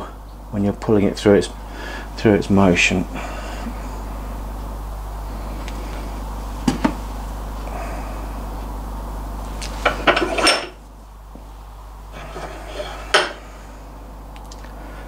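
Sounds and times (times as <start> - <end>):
steady low hum: 0.0 - 15.0
knocks on a workbench: 6.6 - 7.0.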